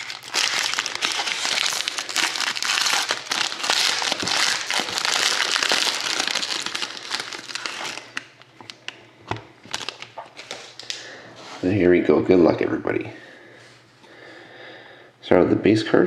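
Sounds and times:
foil wrapper crinkling: 0.0s - 9.0s, 9.6s - 11.0s.

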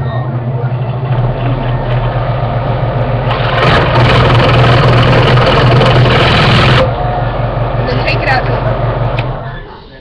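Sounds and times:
scroll saw running: 3.2s - 6.9s.

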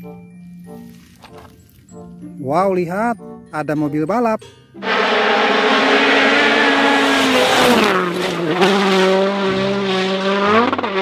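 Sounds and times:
race car engine high revs: 4.8s - 11.0s.

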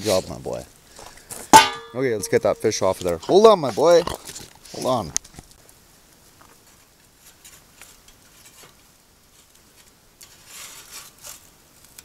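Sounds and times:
faint fire sizzle: 0.0s - 12.0s
metal spatula scraping grill grate: 1.5s - 5.0s, 6.6s - 12.0s.

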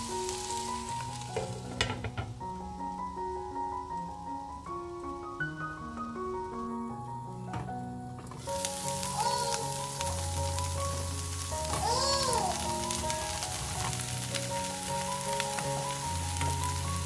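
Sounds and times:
vegetables sizzling in frying pan: 0.0s - 3.2s, 8.1s - 17.0s
soft background music: 0.0s - 17.0s.

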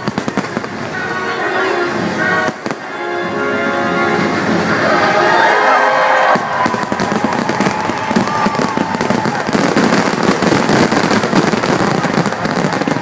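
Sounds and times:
fireworks bangs and crackling: 0.0s - 13.0s.

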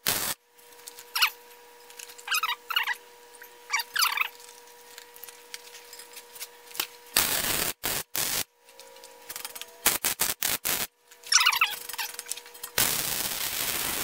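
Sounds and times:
welding arc crackling: 0.0s - 0.4s, 7.1s - 8.5s, 9.3s - 14.0s.

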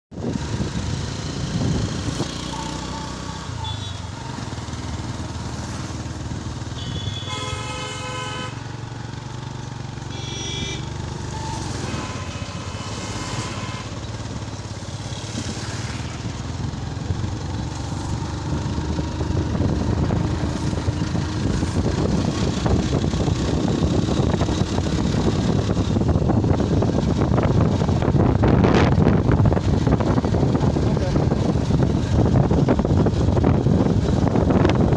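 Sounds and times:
wind and road noise: 0.1s - 34.9s
motorcycle engine running: 0.2s - 34.9s
vehicle horn honking: 2.5s - 4.4s, 6.7s - 8.8s, 10.0s - 14.2s.

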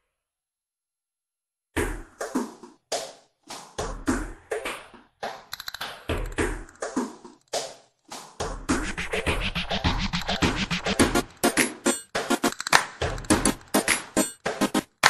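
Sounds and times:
drum-machine hits: 8.4s - 15.0s
electronic dance music: 8.7s - 15.0s.

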